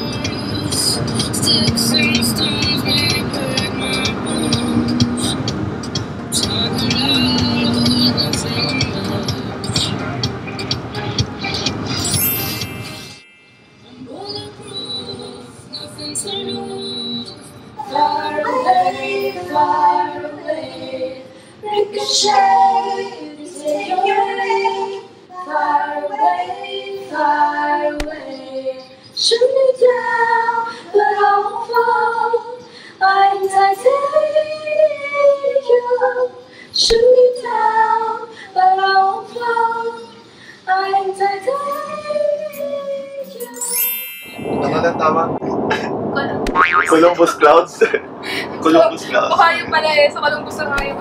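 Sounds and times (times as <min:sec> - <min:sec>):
women singing unaccompanied: 0:00.0 - 0:05.6, 0:06.4 - 0:10.0, 0:13.9 - 0:43.8.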